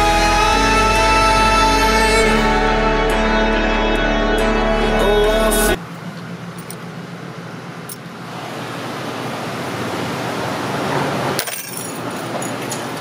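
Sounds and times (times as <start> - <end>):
background music: 0.0 - 5.8
car idling and creeping: 2.0 - 13.0
traffic noise: 4.7 - 13.0.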